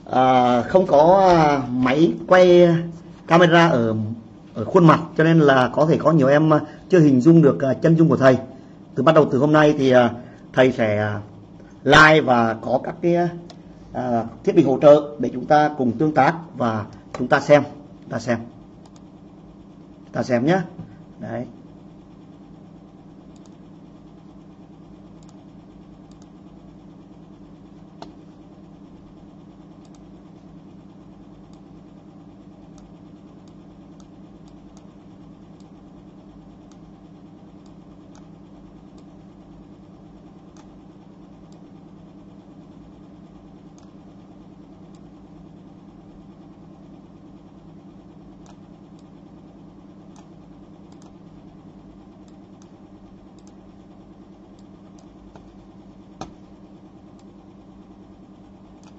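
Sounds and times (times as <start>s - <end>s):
low hum: 0.0s - 58.9s
faint clicks: 18.8s - 19.1s, 23.3s - 23.7s, 26.0s - 26.4s, 29.8s - 30.1s, 36.6s - 36.9s, 43.7s - 44.0s, 52.2s - 53.6s.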